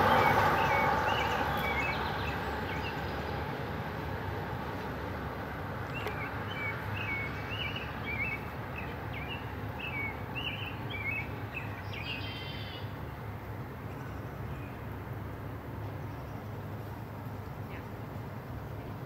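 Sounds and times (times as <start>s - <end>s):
songbird chirping: 0.0s - 3.6s, 5.8s - 13.1s
outdoor background hiss: 0.0s - 19.0s.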